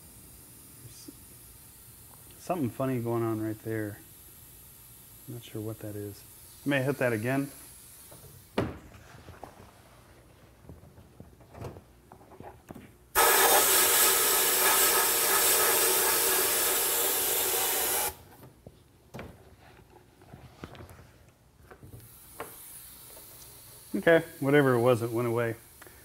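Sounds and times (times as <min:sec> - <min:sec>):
sandblasting hiss: 0:00.0 - 0:08.6, 0:13.2 - 0:18.2, 0:22.0 - 0:26.0.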